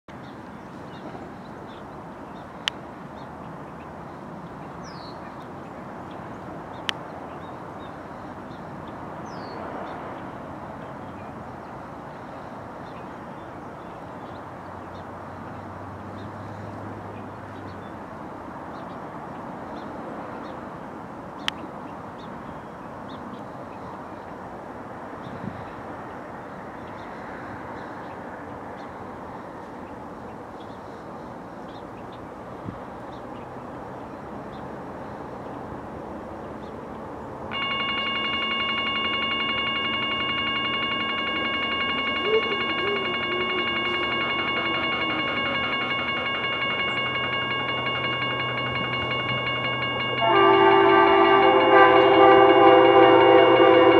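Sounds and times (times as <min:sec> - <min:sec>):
distant diesel locomotive hum: 0:23.1 - 0:53.9
train air horn chord: 0:37.5 - 0:53.9.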